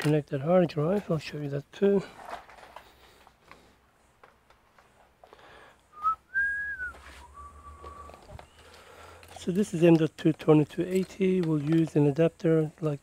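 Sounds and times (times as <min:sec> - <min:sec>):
faint clicks and shuffling: 0:00.0 - 0:06.2, 0:06.8 - 0:13.0
person whistling: 0:05.9 - 0:08.3.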